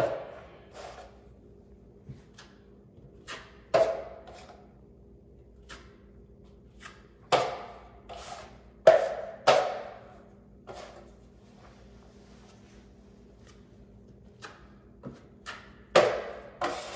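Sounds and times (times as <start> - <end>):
drywall knife scraping: 0.0 - 1.2, 6.6 - 9.8, 10.6 - 11.2, 14.3 - 16.9.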